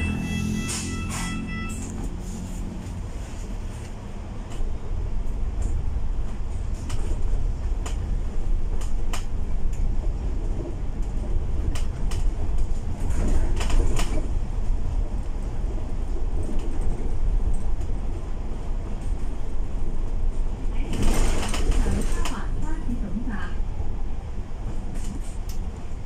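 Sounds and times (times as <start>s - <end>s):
bus engine and road rumble: 0.0s - 26.0s.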